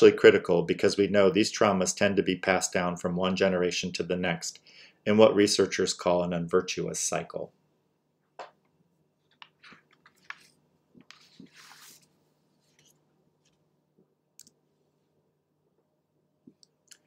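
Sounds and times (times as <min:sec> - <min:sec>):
soft breath: 0:04.6 - 0:05.0.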